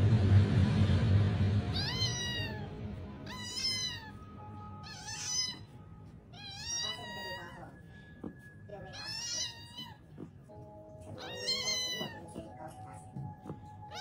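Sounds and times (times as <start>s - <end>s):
low rumbling noise: 0.0s - 6.4s
cat meowing: 1.7s - 14.0s.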